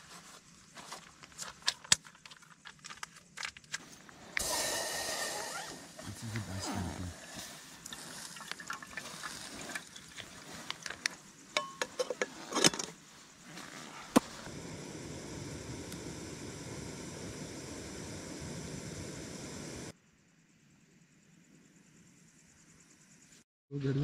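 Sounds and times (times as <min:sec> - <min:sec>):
steady hiss: 0:00.0 - 0:20.0
milk pouring into kettle: 0:06.2 - 0:11.2.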